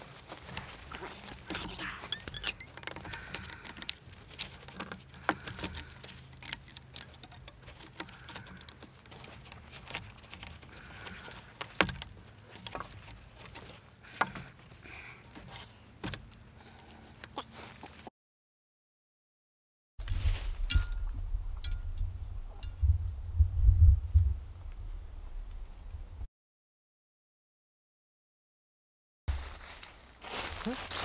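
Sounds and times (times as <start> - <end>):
twine handling clicks and rustles: 0.0 - 17.3.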